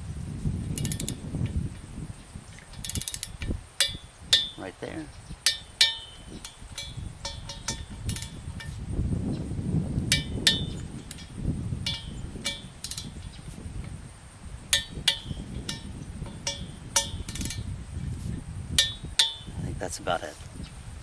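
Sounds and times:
ratchet wrench clicking: 0.7 - 1.2, 2.7 - 4.6, 5.4 - 8.7, 10.1 - 13.2, 14.7 - 17.6.

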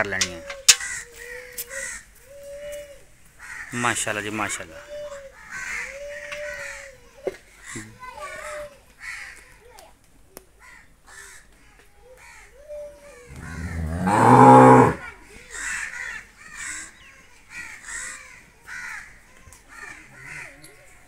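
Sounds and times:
cow mooing: 13.3 - 15.0.

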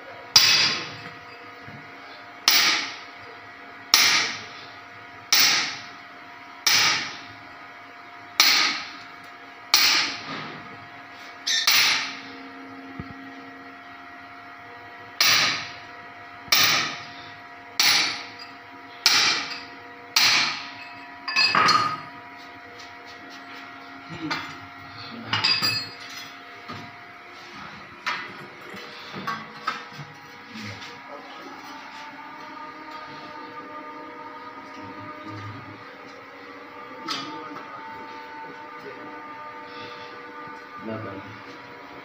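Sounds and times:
hammer striking chisel: 0.4 - 0.8, 2.5 - 3.0, 3.9 - 4.4, 5.3 - 5.8, 6.6 - 7.1, 8.4 - 8.9, 9.7 - 10.2, 11.5 - 12.2, 15.2 - 15.7, 16.5 - 17.0, 17.8 - 18.4, 19.0 - 19.6, 20.2 - 20.7.

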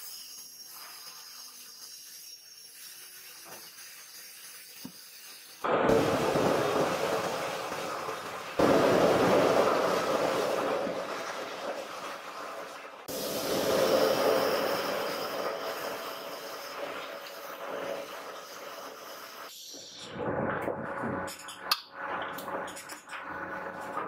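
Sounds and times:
loud rushing hiss: 13.0 - 17.5.

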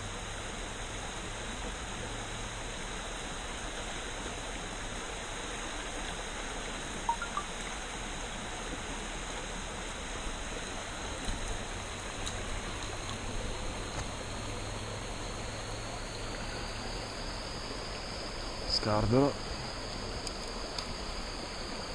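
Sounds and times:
stream running over stones: 0.0 - 21.9
brief high chirps: 7.1 - 7.5.

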